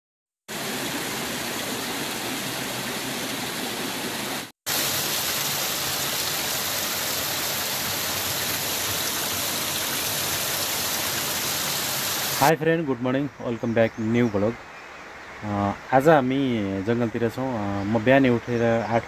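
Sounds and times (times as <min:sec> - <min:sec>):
waterfall splashing over rocks: 0:00.5 - 0:12.6.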